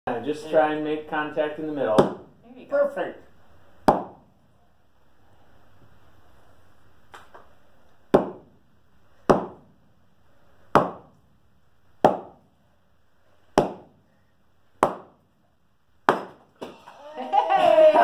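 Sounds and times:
axe thudding on chopping block: 8.1s - 8.5s, 9.3s - 9.7s, 10.8s - 11.1s, 12.0s - 12.4s, 13.6s - 13.9s.

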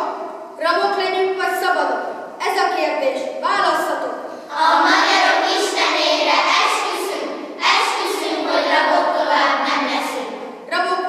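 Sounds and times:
children reciting in unison: 4.4s - 10.6s.

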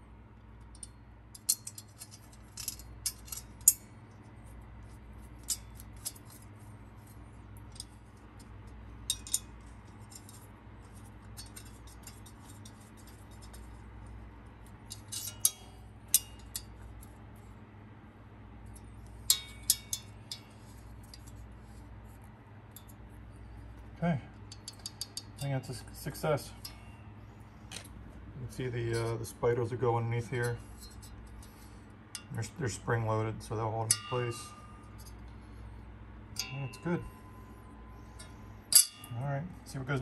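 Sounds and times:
small metallic clicks and clinks: 0.4s - 17.2s, 18.6s - 21.8s, 23.7s - 28.0s, 36.3s - 39.9s
metal tapping on metal: 18.8s - 21.4s.

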